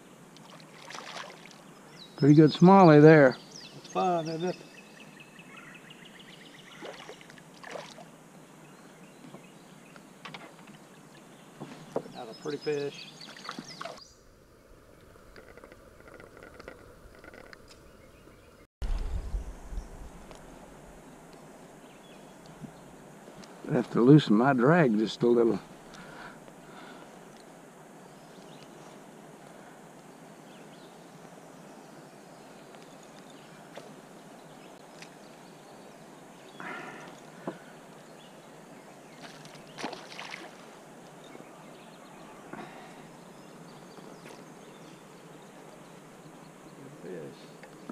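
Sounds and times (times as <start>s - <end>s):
fish splashing at water surface: 0.4s - 1.6s, 39.2s - 40.7s
faint steady background hiss: 17.6s - 47.9s
microphone handling rumble: 18.8s - 21.0s.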